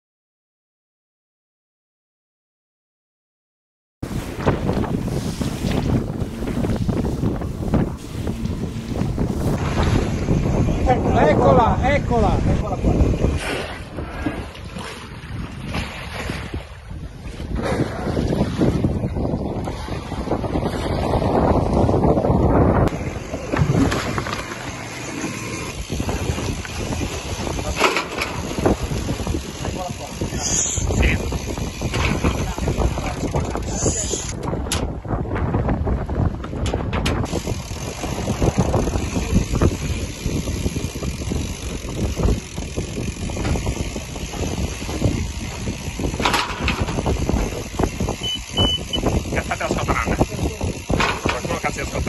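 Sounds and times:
wind on microphone: 4.0s - 52.0s
water sloshing against hull: 4.1s - 11.4s, 12.0s - 30.2s
sharp water splashes: 13.4s - 16.8s.

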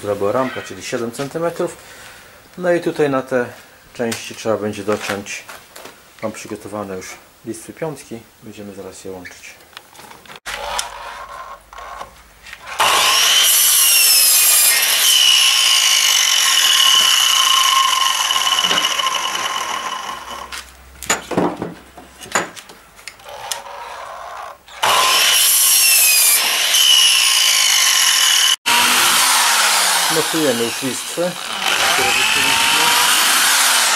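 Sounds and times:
mitre saw cutting wood: 10.5s - 20.6s, 23.1s - 33.9s.

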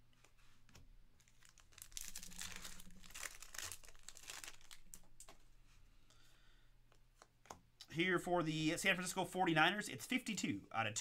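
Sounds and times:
wrapper crinkling being torn: 1.2s - 5.4s.

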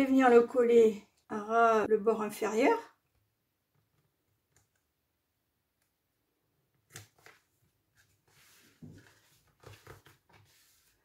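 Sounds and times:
card stock rustling: 6.9s - 11.0s.

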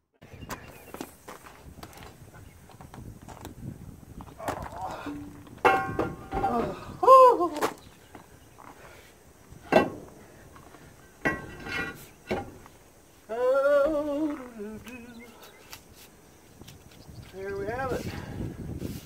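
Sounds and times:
person humming a tune: 13.3s - 15.5s.

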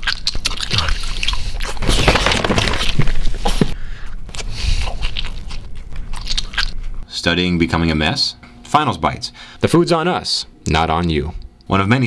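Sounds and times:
person chewing loudly: 0.0s - 3.6s, 4.3s - 7.1s
mouth smacks and crunches: 0.0s - 7.0s.

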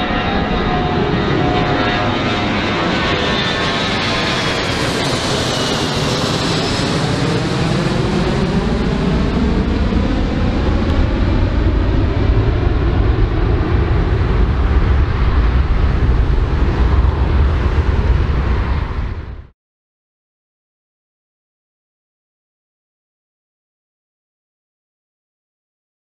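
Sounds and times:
jet engine roar: 0.0s - 19.5s.

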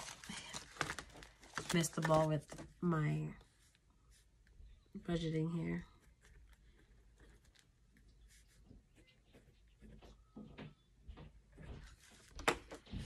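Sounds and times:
paper rustling and tapping: 0.0s - 2.8s.

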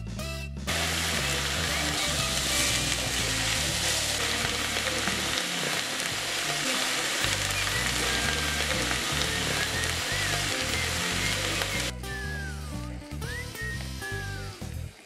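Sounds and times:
background music with bassline: 0.0s - 15.0s
spatula stirring in pan: 0.7s - 11.9s
vegetables sizzling in oil: 0.7s - 12.4s.

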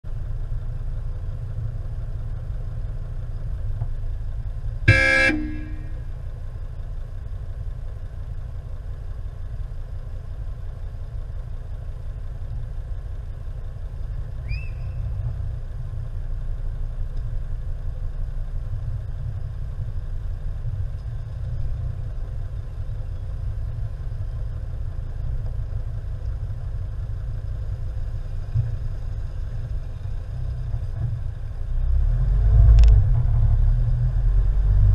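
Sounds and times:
steady low rumble: 0.0s - 34.9s
car horn toot: 4.9s - 6.2s.

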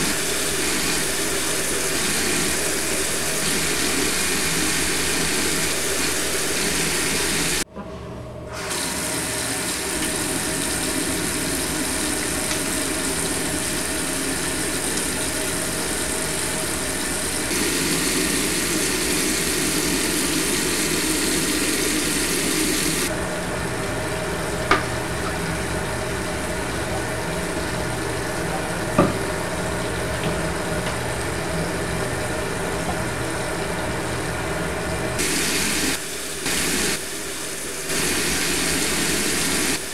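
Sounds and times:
tap water running into sink: 0.0s - 7.6s, 8.7s - 23.1s, 24.5s - 32.2s.

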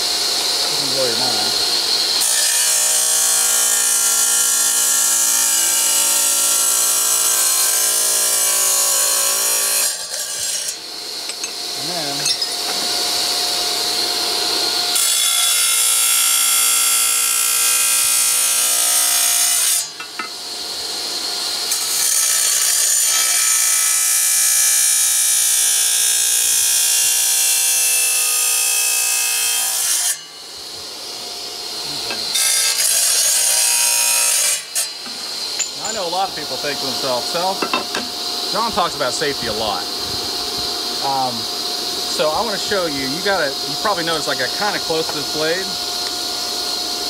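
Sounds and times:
saw motor humming: 0.0s - 22.9s, 29.8s - 47.0s
tile saw grinding through tile: 0.7s - 13.5s, 14.5s - 20.0s, 31.9s - 39.8s.

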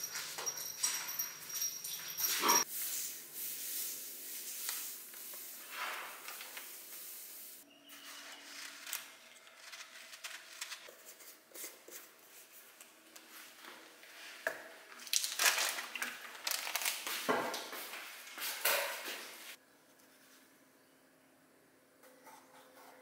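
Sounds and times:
dog moving on tiled floor: 0.0s - 2.7s.

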